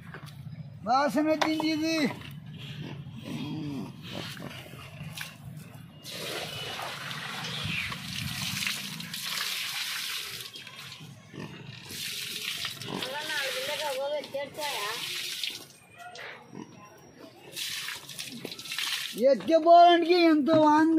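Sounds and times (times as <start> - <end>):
pigs grunting: 2.5 - 5.4, 11.2 - 12.1, 12.7 - 13.5, 16.2 - 17.0
water splashing on concrete floor: 6.0 - 11.0, 11.9 - 15.8, 17.5 - 19.2.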